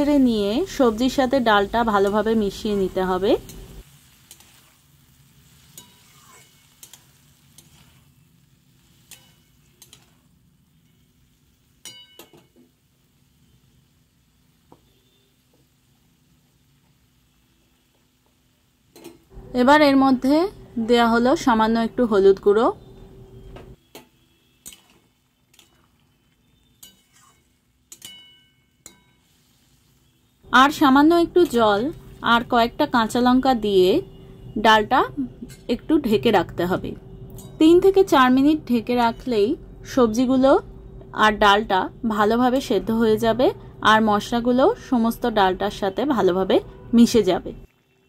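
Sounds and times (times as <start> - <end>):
faint frying sizzle: 0.0 - 48.0
metal spatula stirring in pan: 0.8 - 12.6, 23.9 - 30.2
spatula clattering on pan: 5.7 - 7.9, 9.0 - 10.2, 11.8 - 12.6, 23.9 - 25.8, 26.8 - 29.2
spatula clicking against pan: 27.9 - 28.2.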